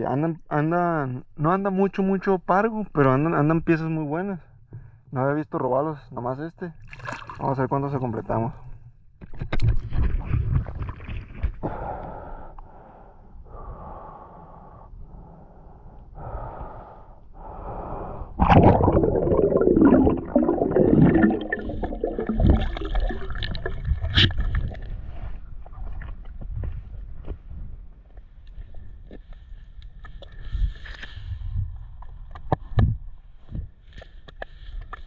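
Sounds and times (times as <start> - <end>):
swimmer breathing: 11.6 - 22.1
water rushing with gurgling bubbles: 18.2 - 25.0.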